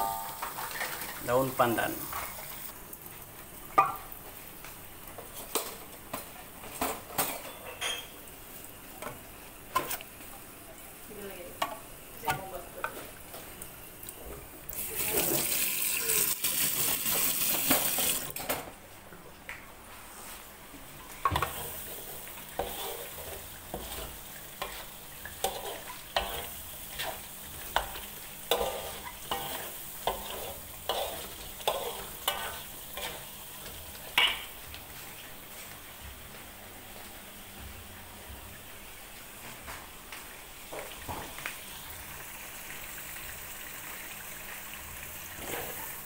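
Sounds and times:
paste sizzling in oil: 0.0 - 5.5, 14.7 - 18.4, 21.4 - 35.7, 40.9 - 46.0
spatula scraping a steel wok: 21.5 - 27.2, 27.8 - 33.3.

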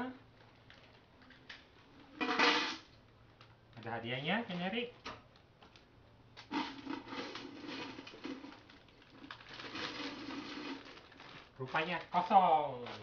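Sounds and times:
plastic snack packet tearing: 6.4 - 13.0.

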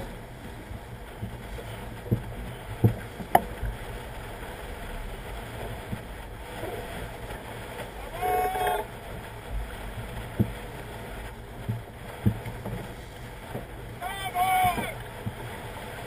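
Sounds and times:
hull thumping on waves: 0.0 - 16.0
wind and water rushing: 0.0 - 16.0
person shouting: 8.1 - 8.8, 14.0 - 15.0.

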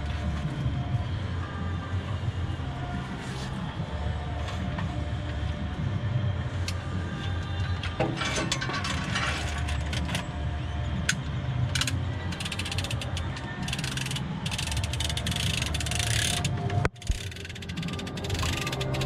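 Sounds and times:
chain hoist ratcheting clicks: 7.8 - 10.4, 11.0 - 19.0.

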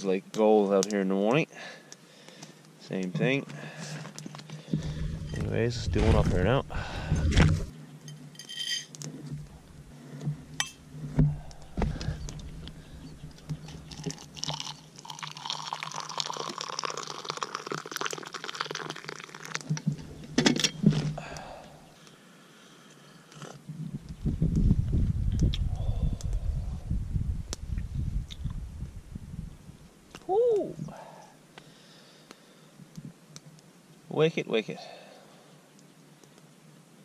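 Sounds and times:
sharp clinks: 8.1 - 9.0
hot water pouring into mug: 13.8 - 19.7.

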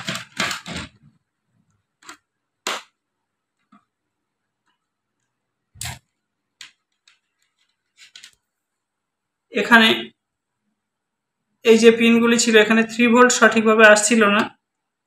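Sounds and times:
rustling and scraping on plastic: 0.0 - 1.2, 6.7 - 8.5.

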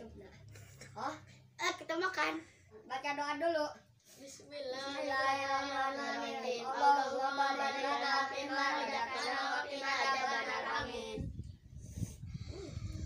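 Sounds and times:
children chanting a prayer: 4.2 - 11.3.

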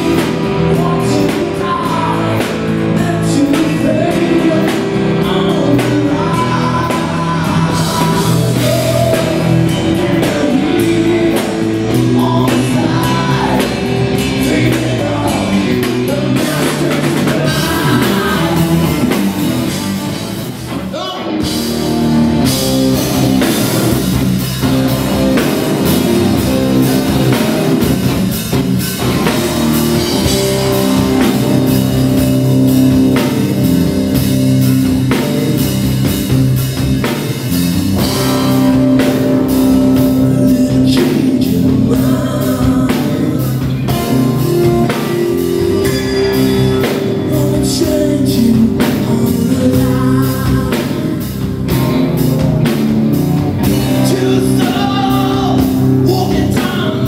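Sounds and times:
man singing: 0.0 - 24.1, 38.0 - 51.7, 53.6 - 57.0
rock band playing: 0.0 - 57.0.

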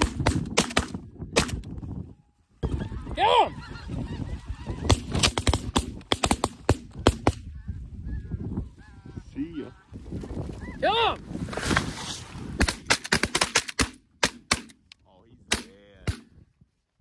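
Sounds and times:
geese honking: 2.6 - 5.2.

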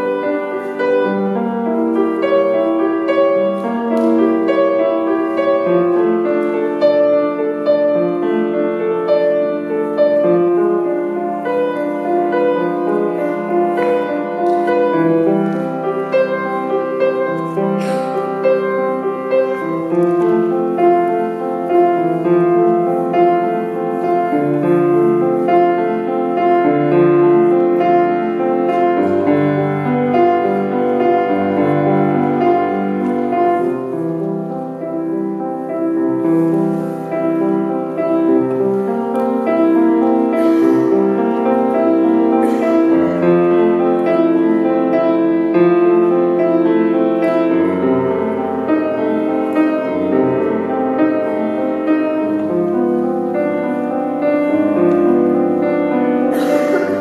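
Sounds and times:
grand piano playing solo: 0.0 - 57.0.

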